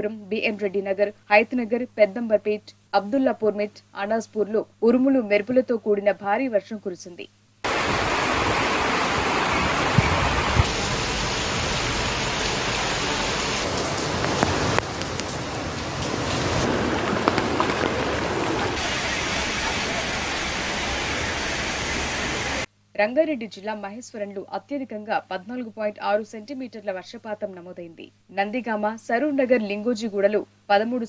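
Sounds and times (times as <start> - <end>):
heavy rain on wet ground: 7.7 - 22.7.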